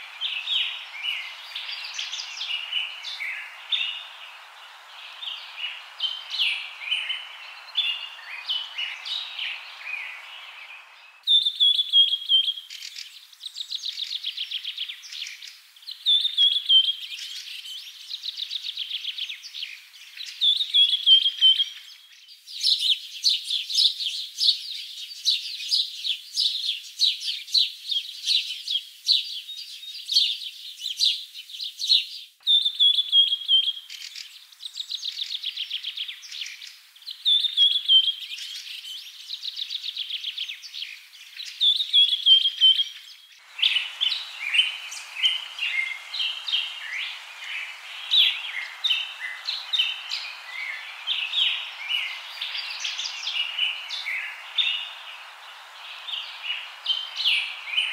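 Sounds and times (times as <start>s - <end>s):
birds chirping: 0.0s - 18.3s, 32.5s - 57.9s.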